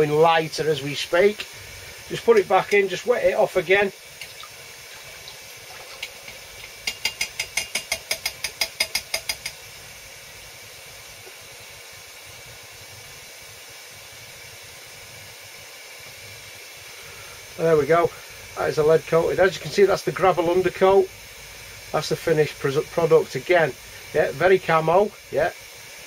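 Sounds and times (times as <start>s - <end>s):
faint hiss of cooling metal: 0.0s - 26.0s.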